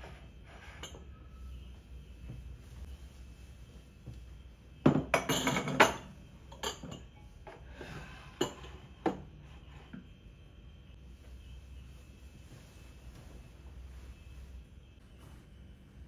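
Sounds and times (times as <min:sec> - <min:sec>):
glasses clinking on a shelf: 0:04.8 - 0:07.6.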